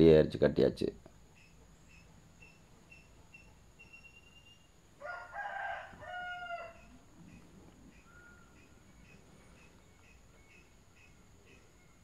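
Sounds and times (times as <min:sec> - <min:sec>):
faint chirps: 0:01.0 - 0:12.0
rooster crowing: 0:05.0 - 0:07.1.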